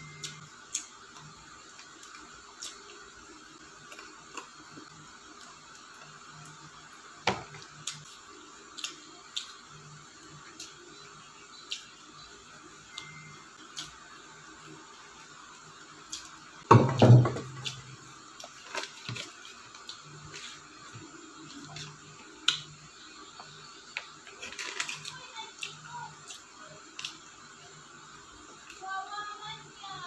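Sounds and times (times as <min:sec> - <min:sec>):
paper and plastic rustling: 0:18.5 - 0:19.6, 0:24.3 - 0:25.0.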